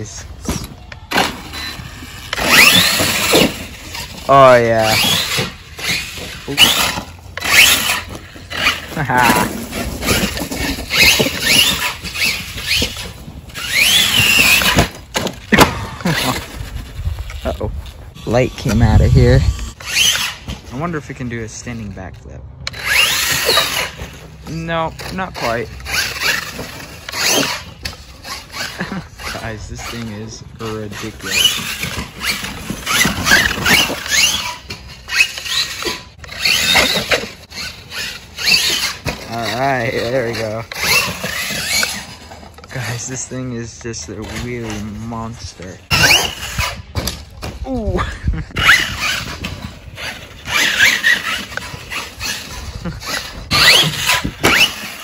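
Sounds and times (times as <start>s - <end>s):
electric motor whining: 0.0s - 15.0s, 48.5s - 55.0s
toy truck crashing: 0.0s - 18.0s, 18.6s - 55.0s.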